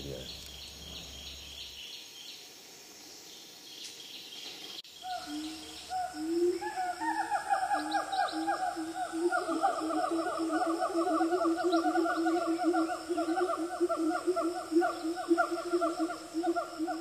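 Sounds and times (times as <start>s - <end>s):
bird chirps: 0.0s - 2.4s, 3.3s - 8.8s
insect chirps: 0.0s - 17.0s.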